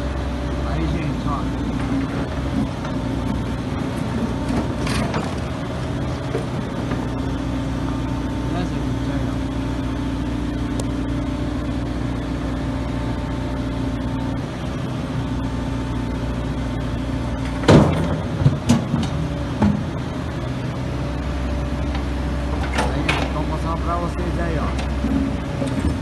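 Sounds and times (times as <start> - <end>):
engine running: 0.0 - 26.0
load clanking into truck bed: 1.8 - 5.6, 17.4 - 20.0, 22.5 - 23.6.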